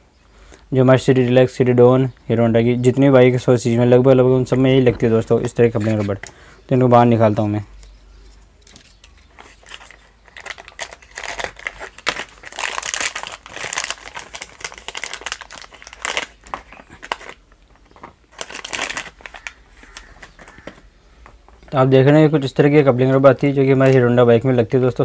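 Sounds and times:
plastic packet crinkling: 0:09.2 - 0:20.9.

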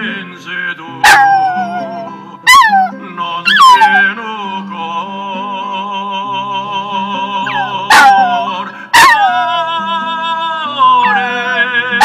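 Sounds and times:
song with singer holding note: 0:00.0 - 0:12.0
puppy yelp: 0:01.0 - 0:04.1, 0:07.5 - 0:09.5, 0:11.0 - 0:11.3
puppy howling: 0:01.0 - 0:04.2, 0:07.4 - 0:09.7, 0:10.8 - 0:11.6.

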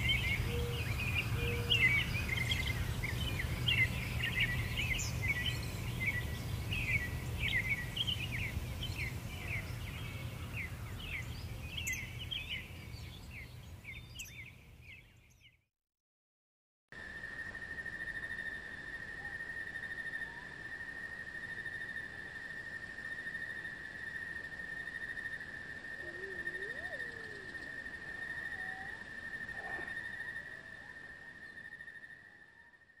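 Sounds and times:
faint whistled bird calls: 0:00.0 - 0:15.5, 0:25.9 - 0:33.0.

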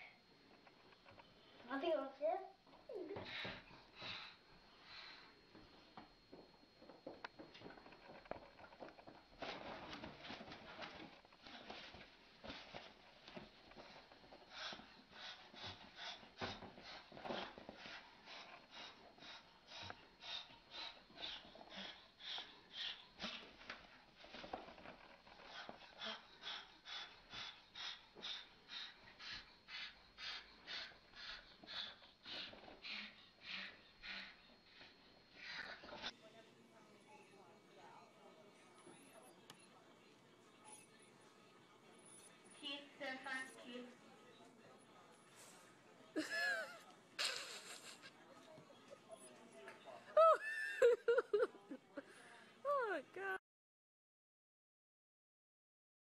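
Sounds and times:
cockatoo huffing: 0:08.8 - 0:36.1.

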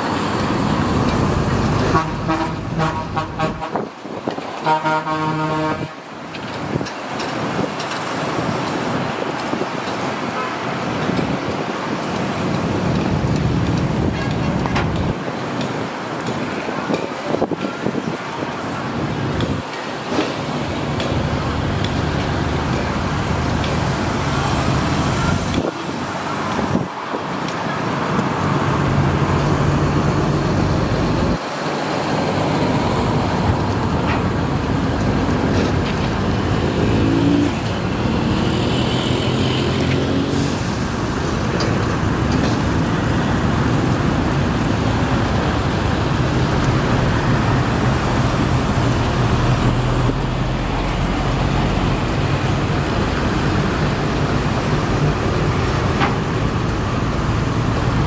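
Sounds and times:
excavator diesel engine under load: 0:00.0 - 0:03.3.

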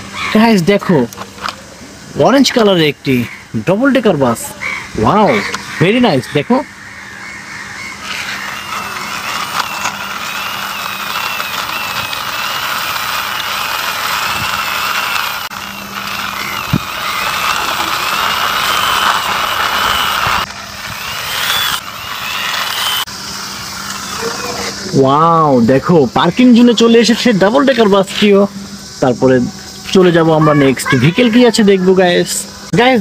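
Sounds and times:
toy wheels rolling on concrete: 0:08.0 - 0:23.1.

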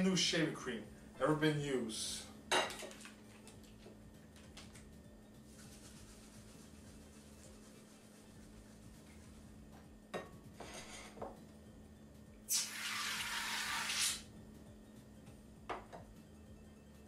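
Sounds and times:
aerosol can spraying foam: 0:12.5 - 0:14.2.

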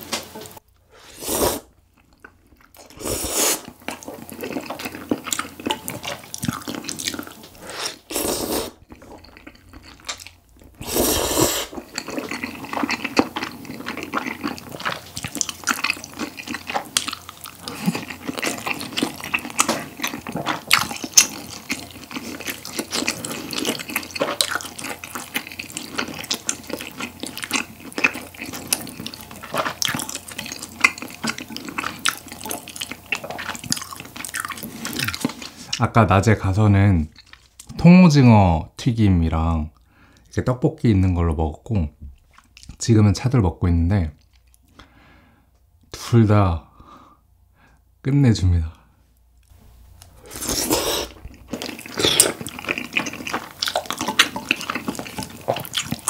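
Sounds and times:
noodle slurps: 0:01.0 - 0:01.7, 0:02.8 - 0:03.7, 0:06.0 - 0:08.8, 0:10.7 - 0:24.4, 0:50.2 - 0:56.0
wet chewing: 0:01.9 - 0:35.8, 0:49.4 - 0:56.0.

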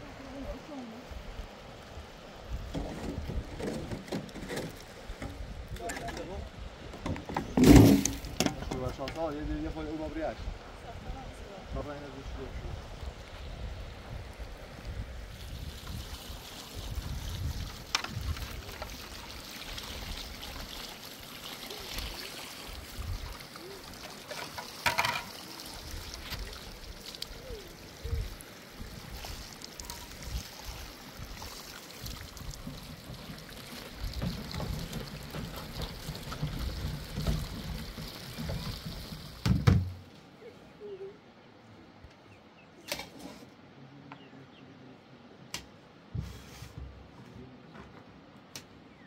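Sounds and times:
water trickling and splashing: 0:00.0 - 0:40.4
wind buffeting microphone: 0:09.4 - 0:18.9
water being scooped: 0:15.3 - 0:39.4.

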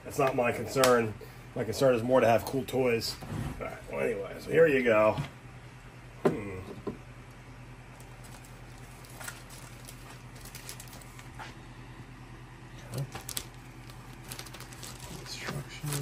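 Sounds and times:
steady low hum: 0:00.0 - 0:16.0
plastic bag rustling: 0:07.9 - 0:11.6, 0:12.8 - 0:16.0.

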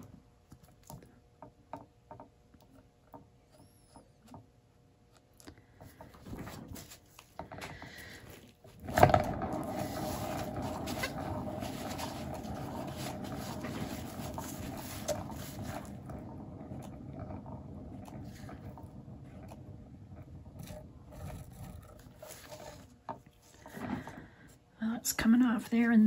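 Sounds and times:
bearing rolling noise: 0:05.6 - 0:26.0.

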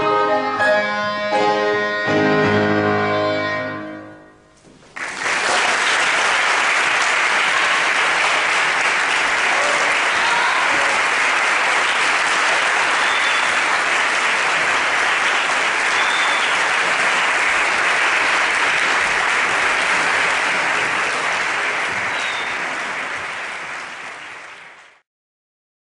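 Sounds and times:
audience applauding: 0:04.8 - 0:25.0.

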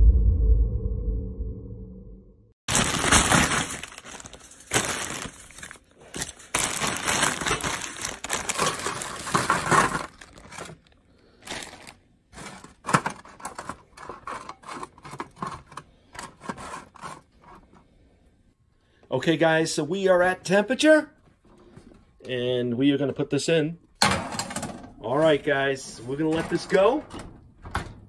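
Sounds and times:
plastic bag crinkling: 0:02.7 - 0:17.1.

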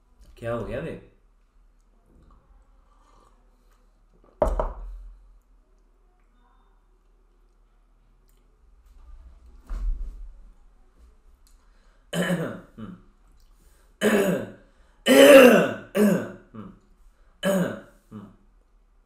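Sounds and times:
man coughing in rough bursts: 0:12.2 - 0:13.0, 0:14.0 - 0:16.8, 0:17.4 - 0:18.3
man clearing his throat: 0:12.2 - 0:13.1, 0:14.0 - 0:16.8, 0:17.4 - 0:18.4.

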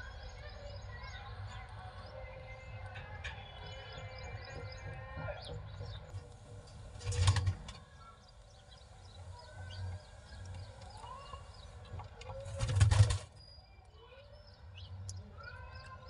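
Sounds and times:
high bird chirps: 0:00.0 - 0:12.6.

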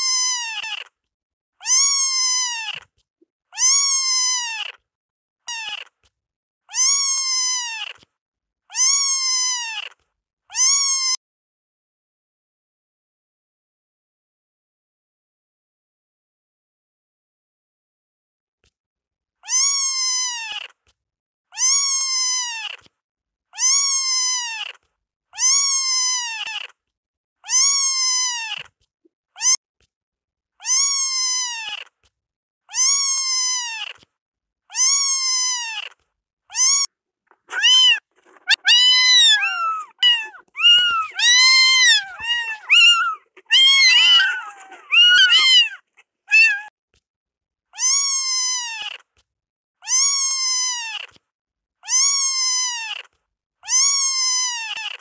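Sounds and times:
kitten meowing: 0:00.0 - 0:00.9, 0:01.6 - 0:02.8, 0:03.6 - 0:04.8, 0:05.5 - 0:05.9, 0:06.7 - 0:08.0, 0:08.7 - 0:09.9, 0:10.5 - 0:11.2, 0:19.4 - 0:20.7, 0:25.4 - 0:26.7, 0:29.4 - 0:29.6, 0:30.6 - 0:31.8, 0:32.7 - 0:34.0, 0:34.7 - 0:35.9, 0:36.5 - 0:46.7, 0:47.8 - 0:49.0, 0:49.8 - 0:51.2, 0:51.8 - 0:53.1, 0:53.7 - 0:55.0.

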